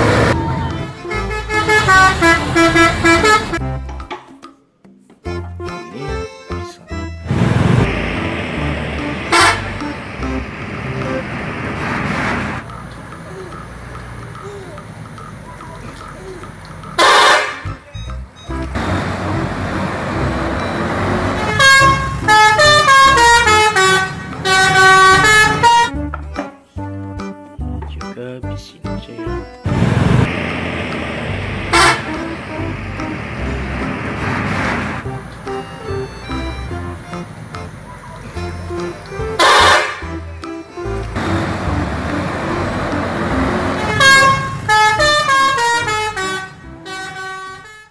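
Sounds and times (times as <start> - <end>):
bus horn playing tune: 0.0 - 3.8, 6.9 - 12.6, 17.0 - 17.8, 18.4 - 26.1, 29.6 - 47.9
passing bus rush: 0.0 - 3.9, 6.7 - 26.0, 29.6 - 47.9
engine and road noise: 0.0 - 4.1, 5.3 - 28.0, 29.3 - 47.9.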